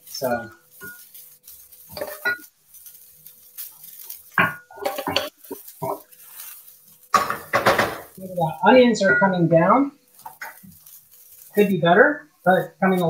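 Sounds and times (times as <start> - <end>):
pots and utensils clinking: 0.0 - 12.4.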